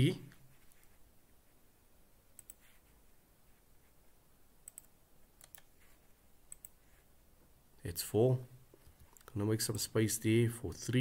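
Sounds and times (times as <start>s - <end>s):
faint computer mouse clicks: 2.4s - 2.7s, 4.6s - 5.7s, 6.5s - 6.8s.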